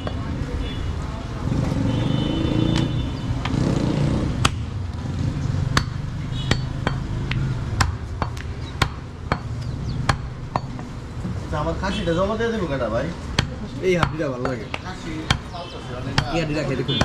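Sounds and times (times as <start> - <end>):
cleaver chopping on wooden block: 5.7 - 10.9, 13.3 - 17.0.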